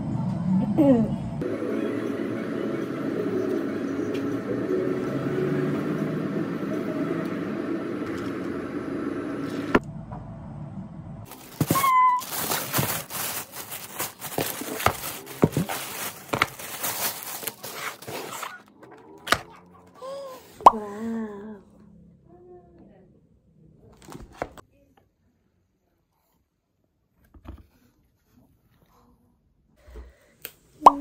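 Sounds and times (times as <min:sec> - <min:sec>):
cardboard box handled: 0:11.3 - 0:18.6
plastic bag rustling: 0:11.3 - 0:20.6
cafe murmur and hum: 0:13.1 - 0:21.9.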